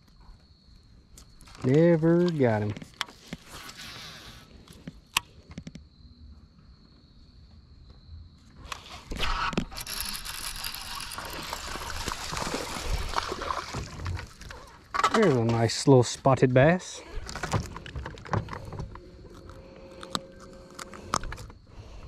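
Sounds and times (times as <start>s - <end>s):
fish reeled in: 9.0s - 14.9s
fishing reel clicks: 9.6s - 12.2s.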